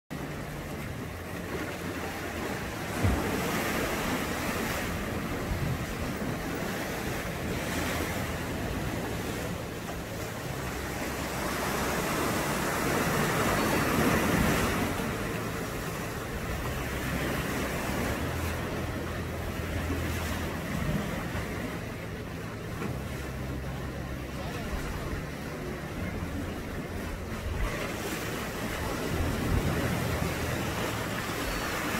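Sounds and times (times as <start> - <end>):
waves breaking over rocks: 0.1 - 31.9
wind on microphone: 2.0 - 18.7.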